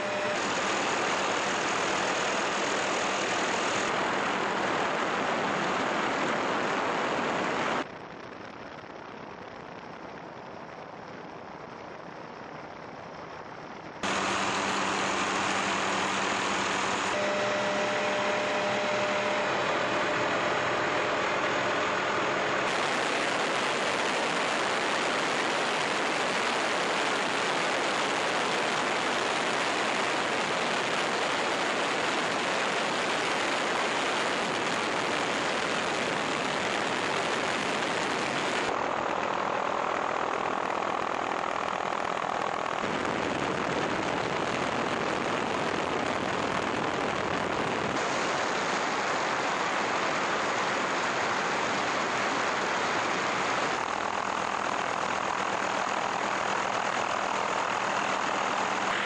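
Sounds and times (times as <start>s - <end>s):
helicopter engine and rotor: 0.0s - 5.2s, 14.0s - 33.3s, 52.7s - 59.0s
faint steady tones: 0.0s - 7.8s, 14.0s - 25.2s.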